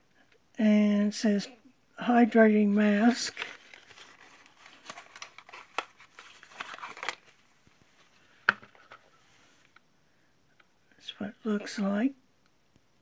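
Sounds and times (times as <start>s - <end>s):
cardboard box rustling: 3.3s - 9.2s.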